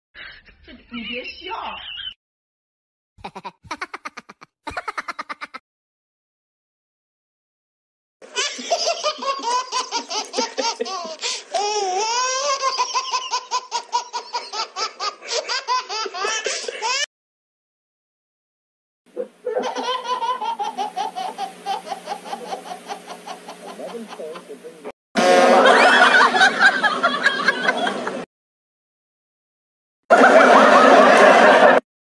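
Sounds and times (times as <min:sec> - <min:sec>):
high-pitched laughing: 0:03.2 - 0:05.6, 0:08.3 - 0:17.1, 0:19.2 - 0:24.6.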